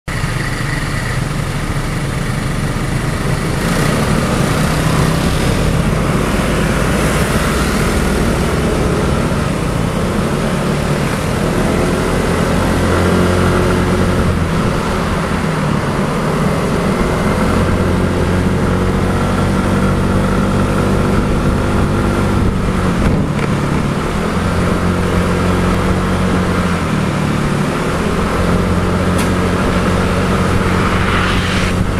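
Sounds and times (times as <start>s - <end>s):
road noise: 0.0s - 31.9s
surrounding scooter engines: 0.0s - 31.9s
scooter engine revving: 3.0s - 31.0s.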